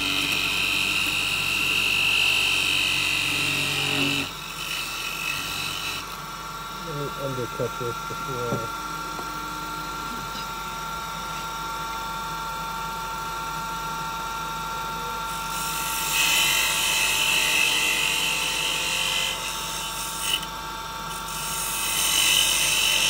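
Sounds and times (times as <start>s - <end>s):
chisel scraping spinning wood: 0.0s - 6.2s
wood lathe motor whine: 0.0s - 23.0s.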